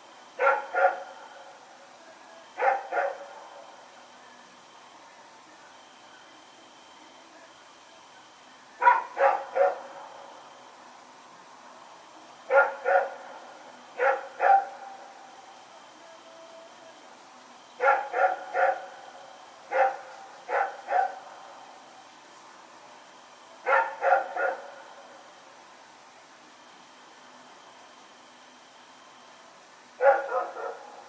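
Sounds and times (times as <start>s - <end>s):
faint steady hiss: 0.0s - 31.0s
dog barking: 0.4s - 1.2s, 2.6s - 3.4s, 8.8s - 10.2s, 12.5s - 13.2s, 14.0s - 15.0s, 17.8s - 19.0s, 19.7s - 21.3s, 23.6s - 24.8s, 30.0s - 31.0s.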